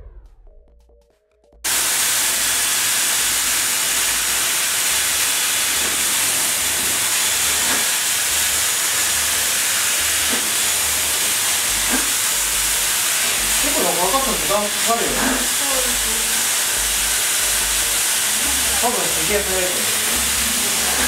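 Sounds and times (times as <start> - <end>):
low rumble: 0.0 - 0.9
hair dryers blowing air: 1.7 - 21.0.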